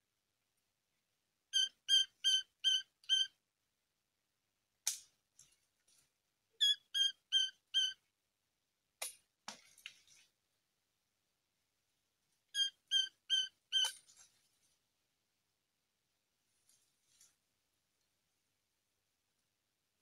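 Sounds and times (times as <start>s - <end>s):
bird fledgling cheeping: 1.6s - 3.3s, 6.6s - 8.0s, 12.6s - 13.9s
brief rustle: 16.6s - 17.4s.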